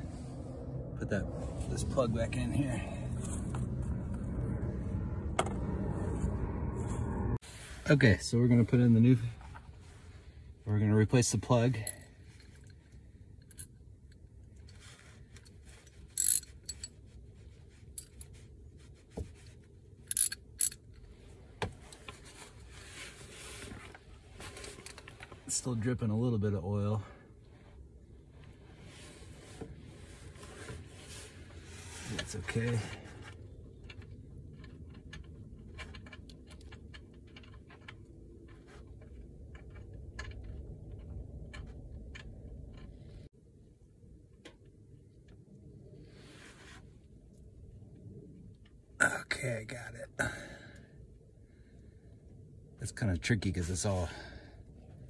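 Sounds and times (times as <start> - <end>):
low steady rumble: 0.0 - 55.0
small metal clinks and rattles: 11.8 - 17.1, 17.9 - 18.4, 20.0 - 21.1.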